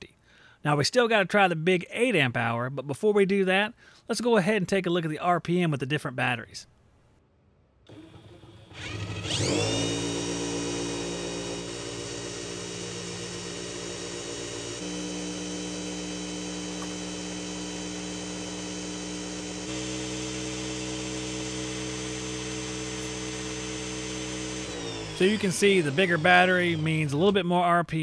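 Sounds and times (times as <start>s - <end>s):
impact driver whining: 7.9s - 27.5s.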